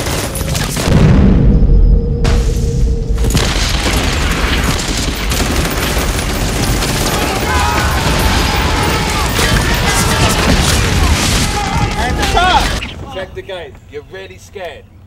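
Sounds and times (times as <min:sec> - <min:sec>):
explosions: 0:00.0 - 0:11.7
rapid gunfire: 0:03.8 - 0:11.5
voices shouting: 0:06.8 - 0:14.7.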